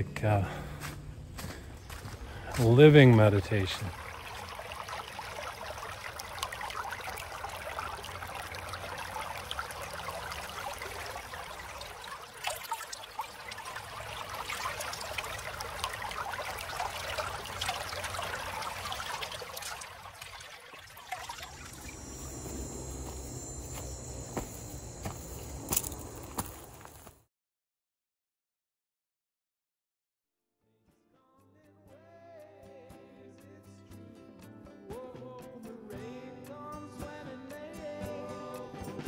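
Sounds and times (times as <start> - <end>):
quiet outdoor background: 0.0 - 27.1
stream babbling over rocks: 2.6 - 26.8.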